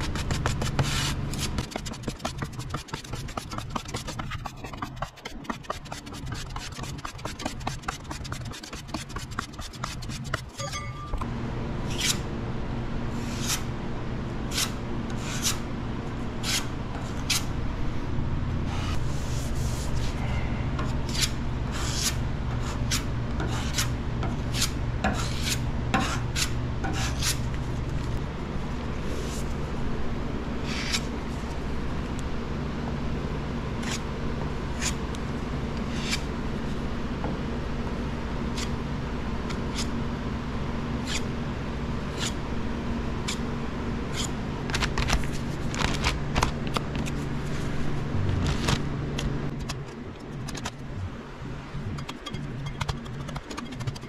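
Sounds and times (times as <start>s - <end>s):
hand sanding block rasping: 0.0s - 10.5s
steady hum: 0.0s - 54.0s.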